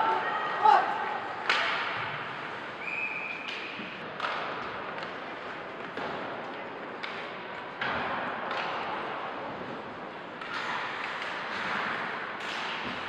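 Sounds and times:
hockey sticks and puck knocking: 0:03.3 - 0:13.0.

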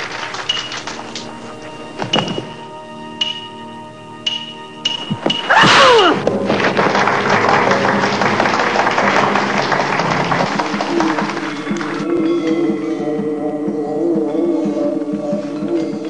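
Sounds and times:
sharp whack with ringing ping: 0:04.2 - 0:05.9
falling yell: 0:05.5 - 0:06.2
loud dense noise with music: 0:05.8 - 0:16.0.

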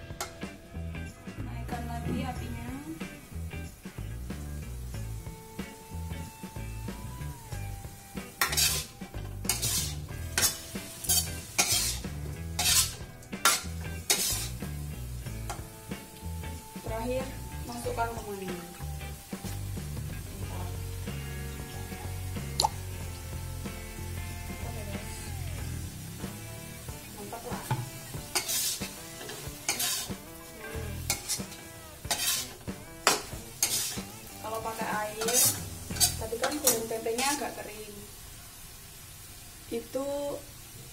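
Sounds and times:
frying sizzle: 0:00.0 - 0:40.9
metal spatula scraping a wok: 0:08.3 - 0:14.8, 0:27.6 - 0:37.6.

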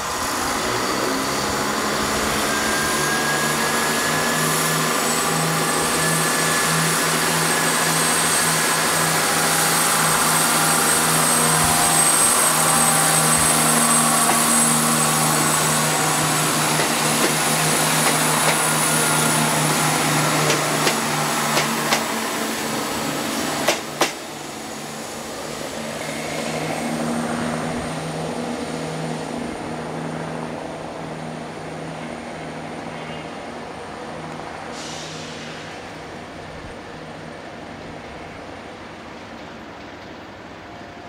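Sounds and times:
diesel train engine humming: 0:00.0 - 0:41.0
train wheels clicking over rail joints: 0:13.2 - 0:14.9, 0:15.6 - 0:22.2, 0:23.6 - 0:24.2.

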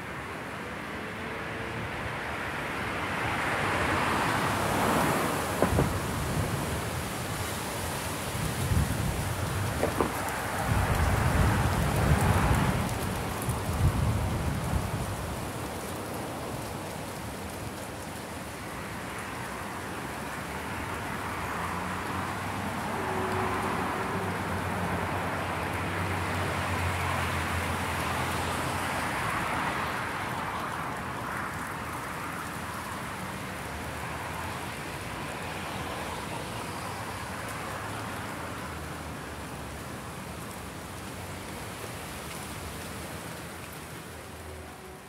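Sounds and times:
vehicle engine and tyre noise: 0:00.0 - 0:45.0.

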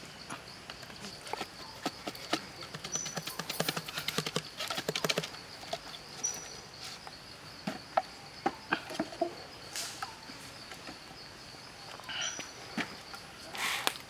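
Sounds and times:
high insect drone: 0:00.0 - 0:14.0
bamboo tube knocking and rattling: 0:00.7 - 0:07.0, 0:07.6 - 0:09.4.

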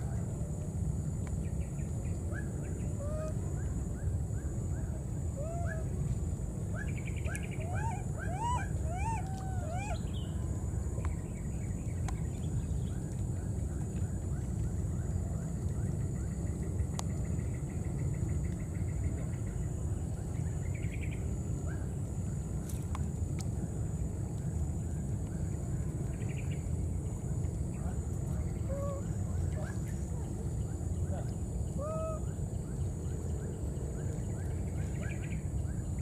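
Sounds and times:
steady low rumble: 0:00.0 - 0:36.0.

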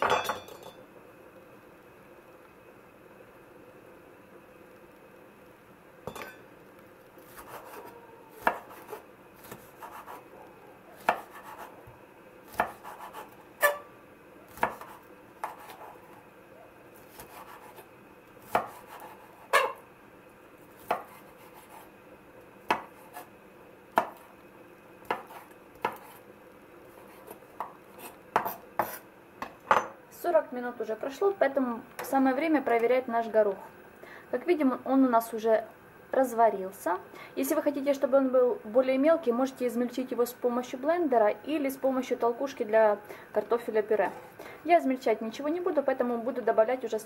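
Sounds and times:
knife chopping on wooden board: 0:07.3 - 0:10.2, 0:11.0 - 0:11.7, 0:12.5 - 0:13.8, 0:14.5 - 0:16.0, 0:17.1 - 0:17.8, 0:18.5 - 0:19.8, 0:20.8 - 0:21.9, 0:22.7 - 0:23.3, 0:24.0 - 0:24.3, 0:25.0 - 0:26.2, 0:27.0 - 0:29.9.

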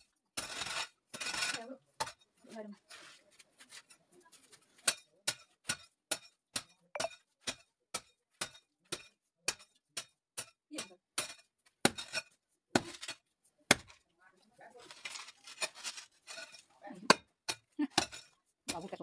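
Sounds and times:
digging tool striking earth: 0:11.2 - 0:14.0, 0:15.0 - 0:18.9.

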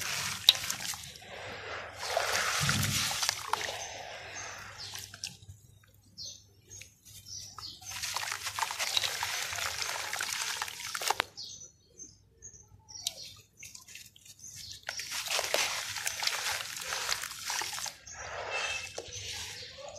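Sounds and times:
wet dirt splashing into water: 0:00.0 - 0:05.5, 0:06.7 - 0:11.5, 0:13.9 - 0:19.9
soft water sloshes: 0:00.0 - 0:06.0, 0:13.4 - 0:19.9.

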